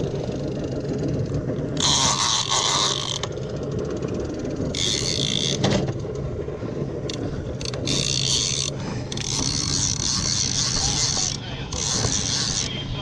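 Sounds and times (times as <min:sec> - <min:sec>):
outboard motor humming: 0:00.0 - 0:13.0
fishing reel whirring hiss: 0:01.8 - 0:03.4, 0:04.7 - 0:05.6, 0:07.6 - 0:12.7
fishing reel light ticking: 0:07.1 - 0:12.7.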